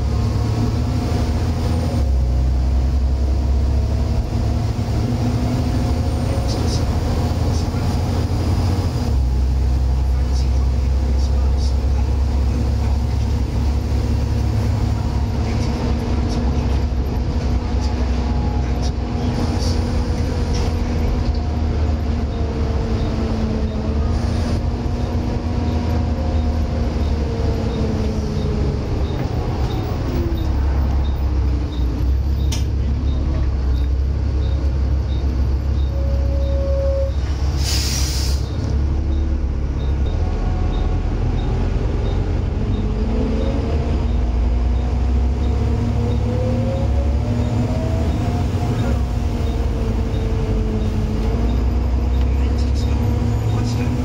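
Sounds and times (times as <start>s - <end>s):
diesel bus engine droning: 0.0s - 54.0s
air hiss: 37.6s - 38.5s.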